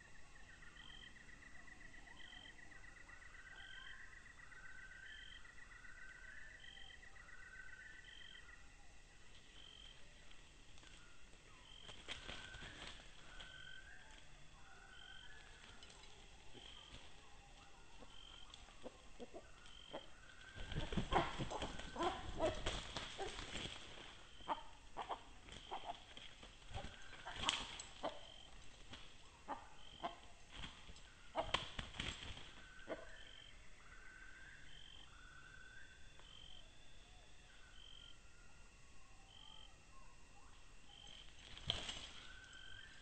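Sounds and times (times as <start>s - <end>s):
rustling in dry leaves: 9.3s - 14.6s, 15.3s - 32.8s, 41.2s - 43.0s.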